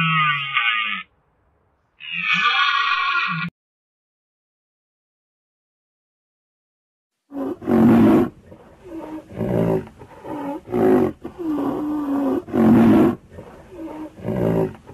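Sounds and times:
animal roars: 7.3 - 14.9.

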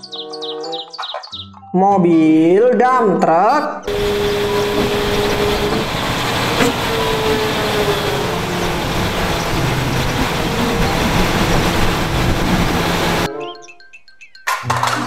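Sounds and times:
diesel truck engine running: 3.9 - 13.3
hydraulic whine: 3.9 - 13.3.

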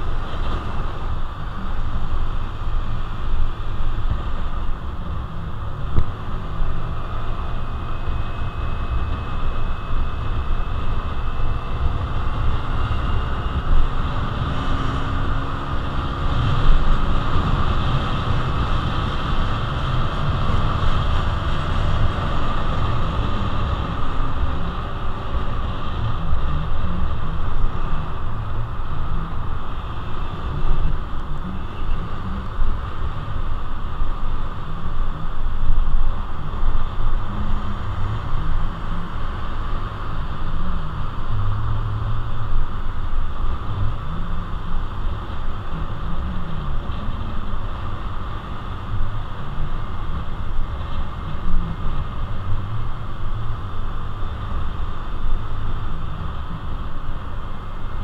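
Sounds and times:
wind and road noise: 0.0 - 58.0.

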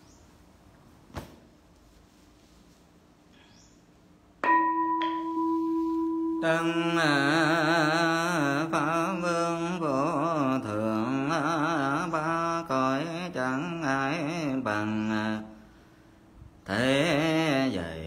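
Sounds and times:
bowl bell ringing: 4.4 - 7.7
person chanting: 4.8 - 15.6, 16.6 - 18.0.

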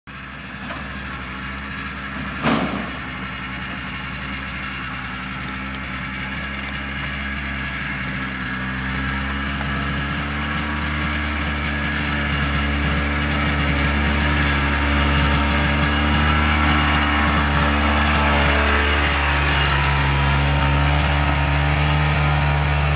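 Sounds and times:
atv engine running: 0.1 - 22.9
loud knock: 2.4 - 3.1.

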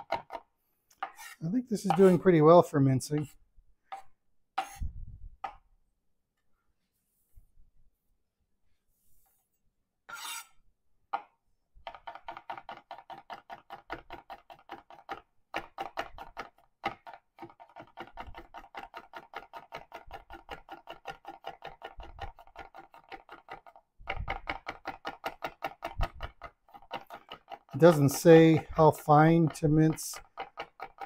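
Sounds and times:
knife scraping board: 1.0 - 2.3, 3.9 - 4.9, 10.1 - 10.6, 17.4 - 23.8, 24.9 - 31.0.

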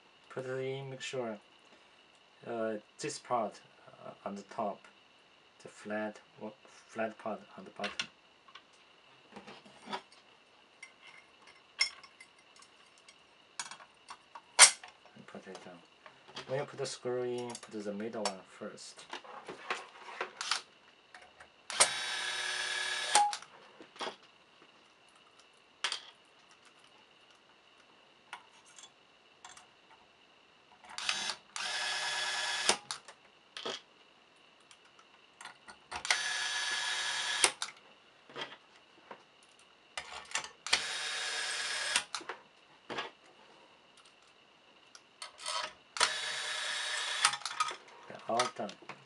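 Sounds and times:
electric screwdriver whirring: 21.7 - 23.4, 31.0 - 32.9, 36.0 - 37.6, 40.7 - 42.2, 46.0 - 47.4.

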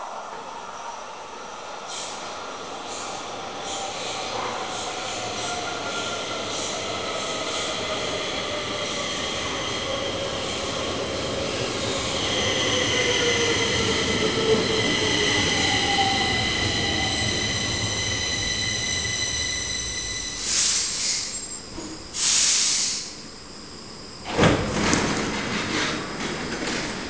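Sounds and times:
air hiss: 20.3 - 23.3.

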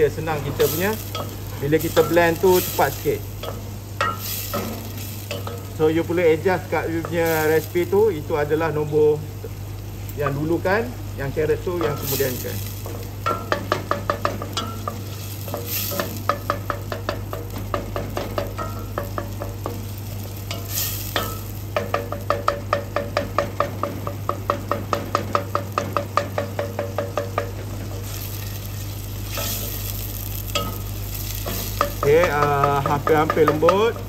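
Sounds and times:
onion and potato sizzling: 0.0 - 34.0
wooden spoon knocking metal pot: 12.8 - 19.8, 21.2 - 28.0, 30.5 - 34.0.

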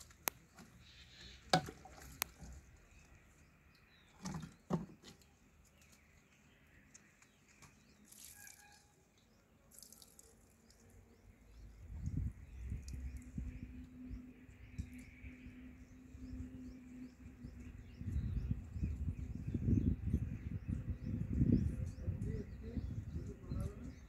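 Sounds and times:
water sloshing and dripping: 0.0 - 6.3, 6.9 - 11.0.

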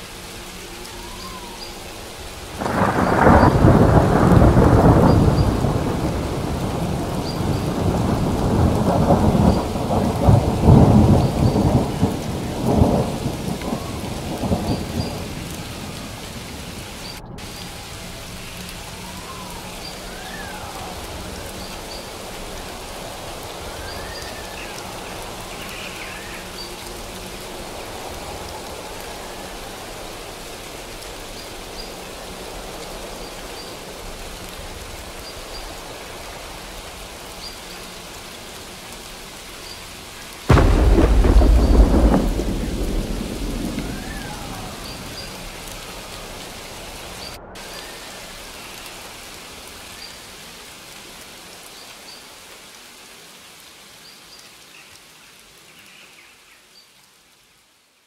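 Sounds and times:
steady rain: 0.0 - 58.0
thunder rumbling: 0.9 - 37.7, 40.4 - 49.7.

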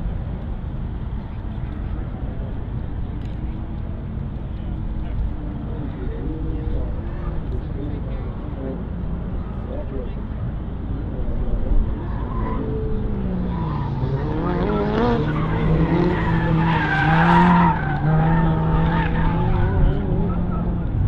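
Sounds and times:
car engine revving: 11.5 - 21.0.

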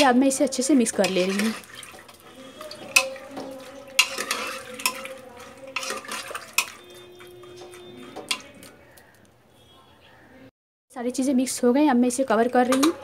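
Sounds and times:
spoon clinking against metal pot: 0.8 - 8.8, 12.6 - 13.0
spoon scraping wet mix: 0.8 - 9.2.

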